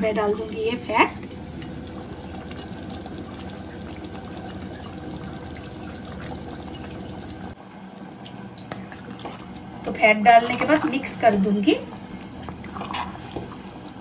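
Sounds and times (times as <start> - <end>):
curry bubbling in a pan: 0.3 - 14.0.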